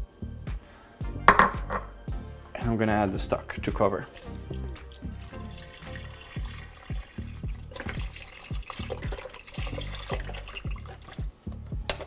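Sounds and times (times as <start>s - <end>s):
broth glugging into a pot: 4.1s - 11.4s.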